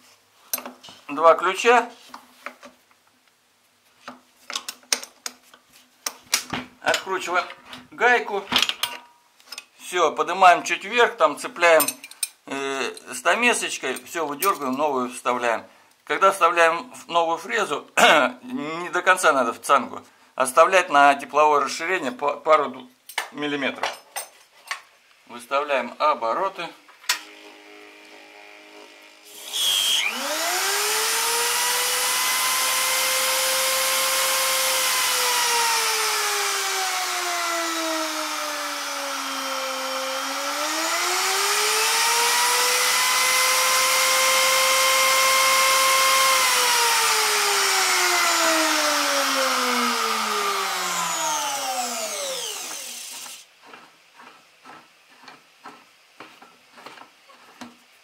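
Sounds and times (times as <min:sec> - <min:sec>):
router motor whine: 0:27.2 - 0:53.4.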